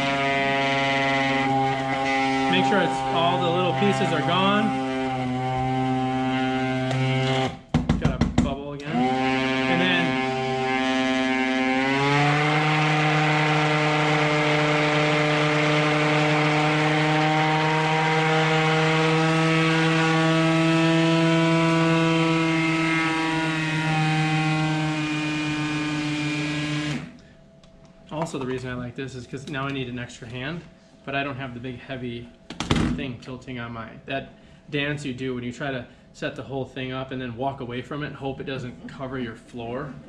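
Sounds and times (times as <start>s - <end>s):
immersion blender humming: 0.0s - 7.7s, 8.8s - 27.2s.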